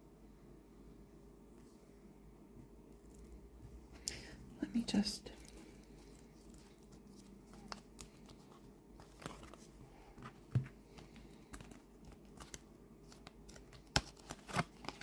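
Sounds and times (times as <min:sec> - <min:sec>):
cards rustling: 0:05.3 - 0:15.0.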